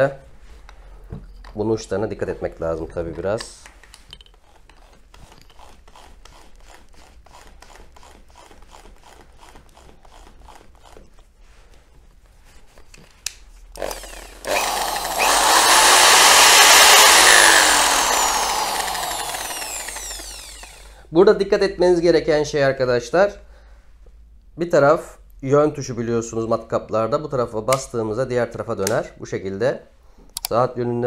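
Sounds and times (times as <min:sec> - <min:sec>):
electric drill with wire brush: 0:13.8 - 0:21.0.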